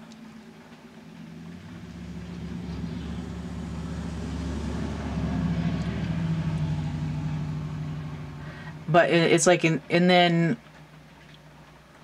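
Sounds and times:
vehicle engine droning by: 0.2s - 9.6s.

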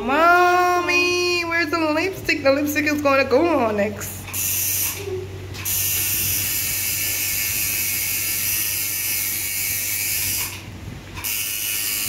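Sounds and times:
tattoo machine buzzing: 4.3s - 12.0s.

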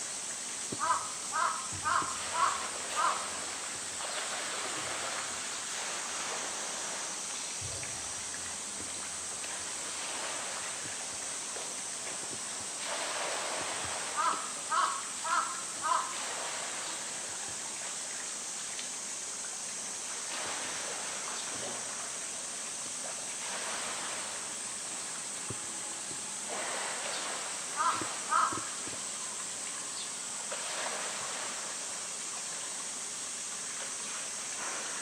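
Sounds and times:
pool water splashing: 0.0s - 35.0s
crow cawing: 0.8s - 3.3s, 14.2s - 16.2s, 27.8s - 28.8s.

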